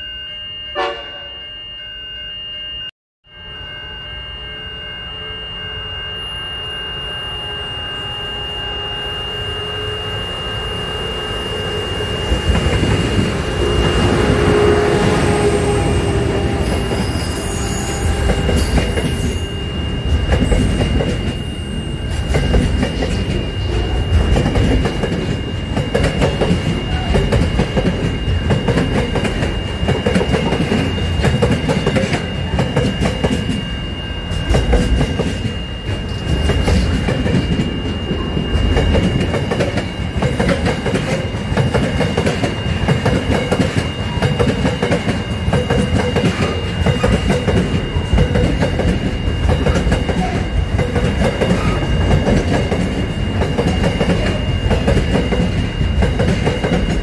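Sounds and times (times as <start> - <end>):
steady high-pitched tone: 0.0 - 57.0
freight train wheels clacking: 11.5 - 57.0.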